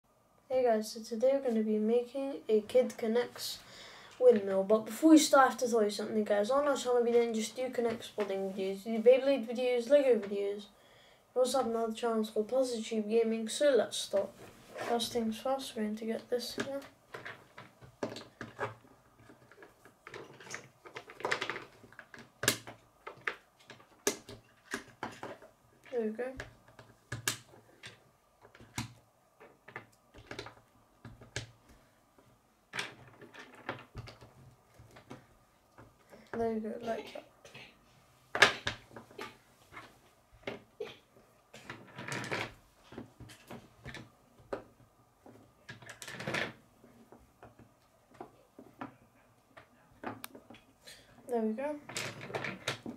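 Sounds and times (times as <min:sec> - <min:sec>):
plastic pieces snapping together: 0:19.6 - 0:25.4, 0:26.4 - 0:31.5.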